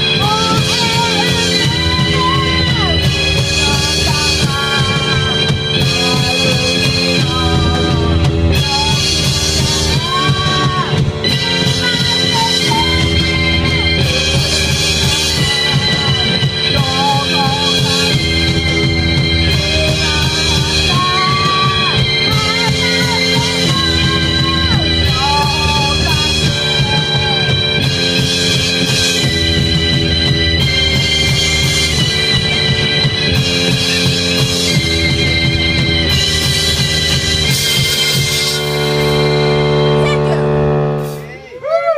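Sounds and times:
woman singing: 0.0s - 27.6s
drum kit: 0.0s - 41.9s
electronic keyboard chords: 0.0s - 41.9s.

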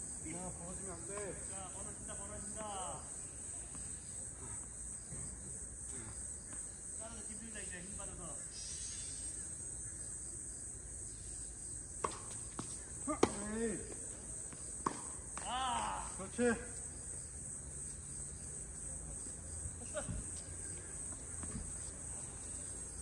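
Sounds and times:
insect chirring: 0.0s - 23.0s
tennis balls struck by rackets: 11.9s - 16.3s
tennis balls bouncing on court: 12.0s - 16.2s.

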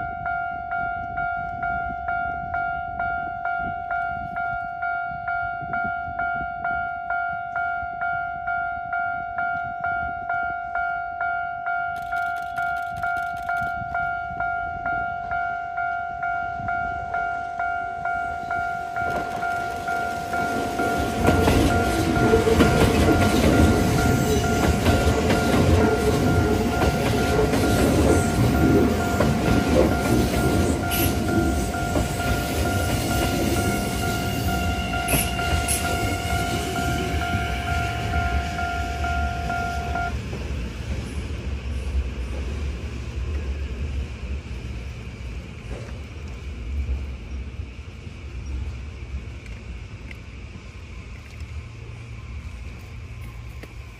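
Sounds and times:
level crossing bell ringing: 0.0s - 40.1s
train passing: 0.0s - 53.9s.

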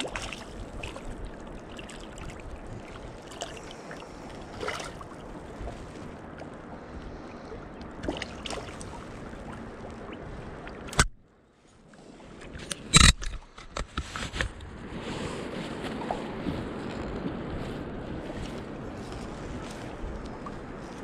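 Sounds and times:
river water: 0.0s - 21.0s
wind: 0.0s - 21.0s
sharp click: 10.9s - 11.2s, 12.6s - 14.0s.

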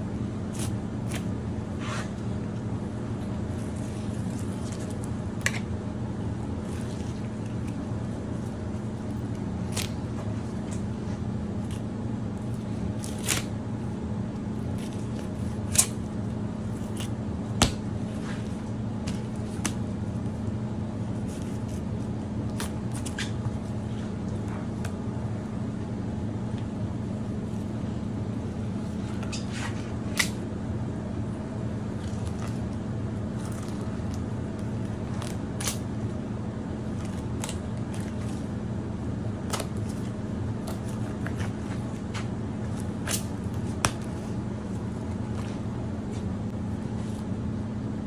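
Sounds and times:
steady low hum: 0.0s - 48.0s
wet squishing handling: 6.5s - 13.4s.

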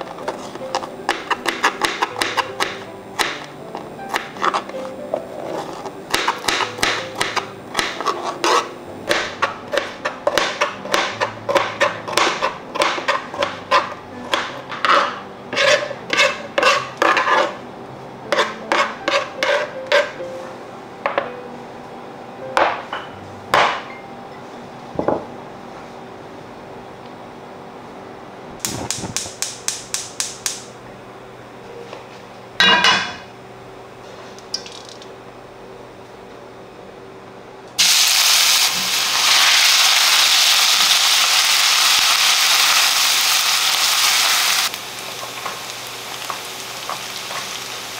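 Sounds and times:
knife chopping on cutting board: 0.2s - 4.7s, 5.5s - 17.5s, 18.3s - 20.2s.

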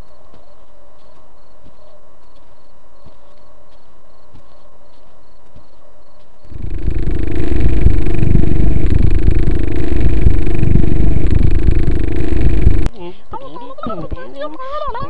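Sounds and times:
loud low rumble: 6.5s - 12.9s.

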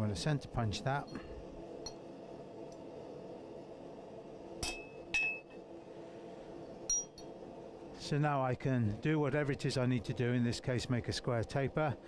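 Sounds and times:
light metal clink: 6.9s - 7.3s.

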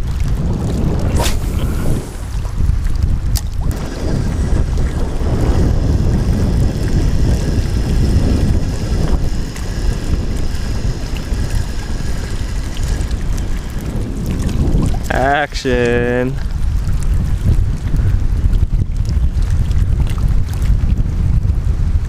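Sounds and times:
wind buffeting microphone: 0.0s - 22.0s.

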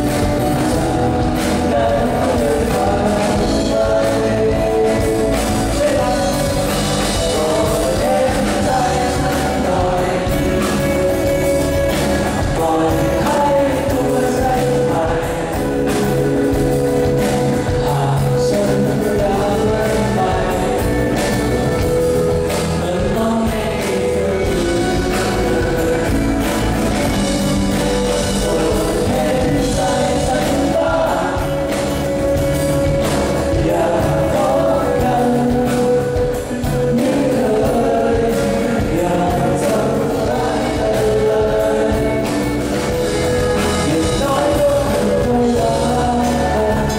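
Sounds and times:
live rock band playing: 0.0s - 46.9s
man singing: 0.0s - 46.9s.

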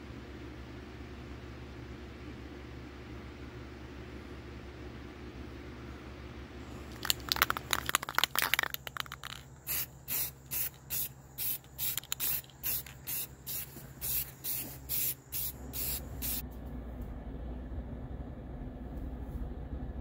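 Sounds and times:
spray can hissing puffs: 6.9s - 16.4s.

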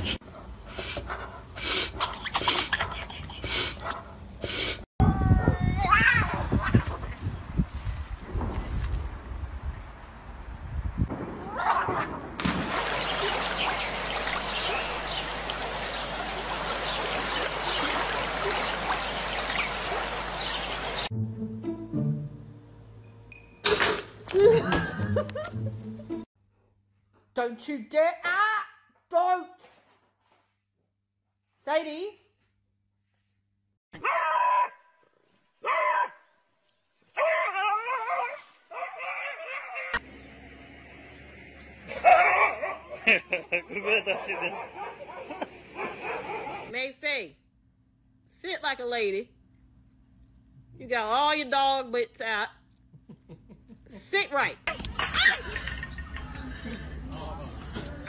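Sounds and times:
running water rushing: 12.4s - 21.1s
dog yelping: 34.0s - 34.8s, 35.6s - 36.2s, 37.2s - 40.0s, 41.9s - 43.0s
dog barking: 34.0s - 34.9s, 35.6s - 36.2s, 37.2s - 40.0s, 41.9s - 43.0s, 43.8s - 46.7s.

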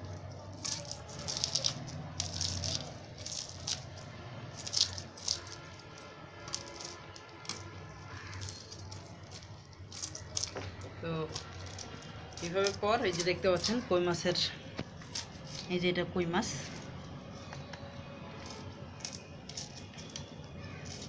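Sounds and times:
knife scraping fish scales: 18.4s - 21.0s.

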